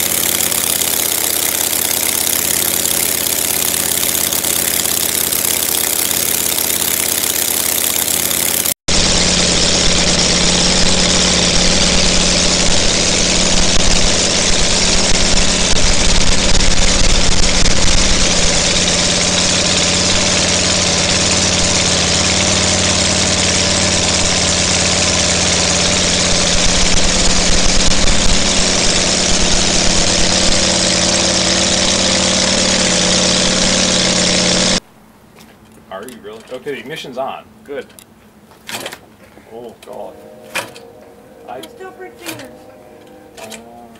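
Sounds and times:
model radial engine running: 0:00.0 - 0:34.8.

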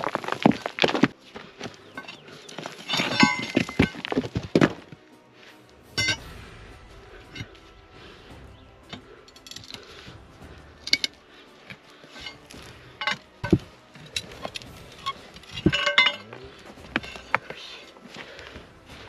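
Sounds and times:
metal bar striking stones: 0:02.0 - 0:04.7, 0:05.9 - 0:06.2, 0:10.8 - 0:11.2, 0:12.2 - 0:17.5.

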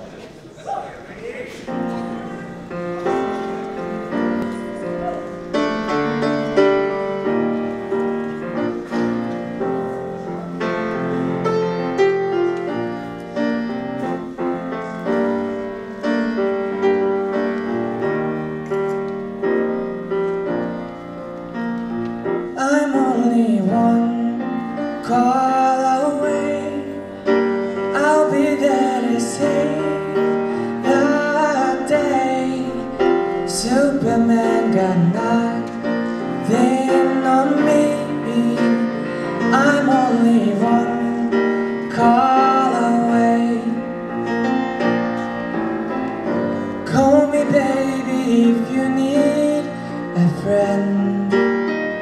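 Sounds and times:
grand piano chords: 0:00.0 - 0:52.0
person singing: 0:22.4 - 0:44.5, 0:46.4 - 0:52.0.

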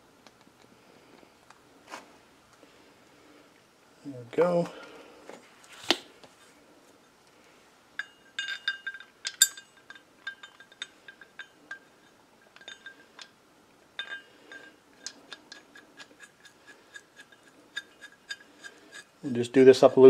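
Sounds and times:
metal clinks and taps: 0:08.0 - 0:13.4, 0:14.0 - 0:19.1.

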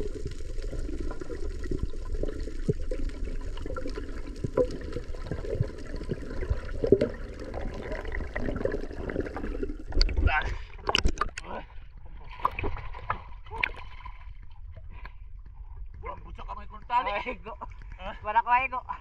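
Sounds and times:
underwater churning and bubbling: 0:00.0 - 0:19.0
small underwater knocks: 0:10.8 - 0:11.4.

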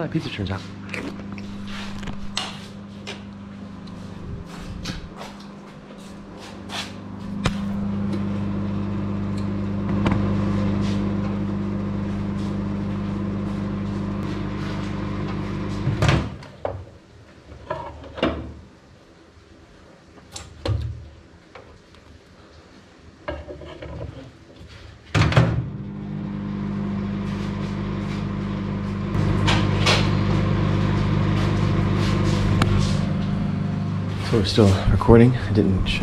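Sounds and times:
microwave oven humming: 0:00.0 - 0:16.4, 0:25.2 - 0:36.0
microwave stopping clunk: 0:07.4 - 0:16.5, 0:25.2 - 0:34.3.

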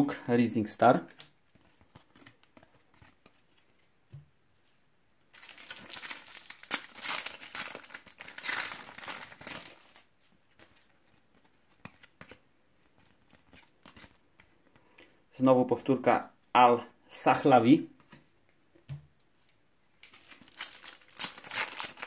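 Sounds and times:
foil packet tearing and crinkling: 0:05.4 - 0:10.0, 0:20.0 - 0:22.0.

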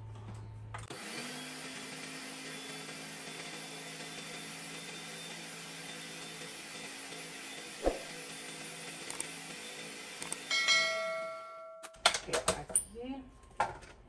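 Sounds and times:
blender motor grinding: 0:00.9 - 0:10.5.

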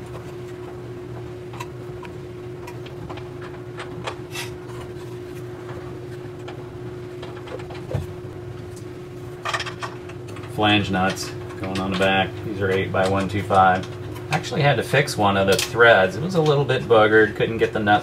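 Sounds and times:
steady hum: 0:00.0 - 0:18.0.

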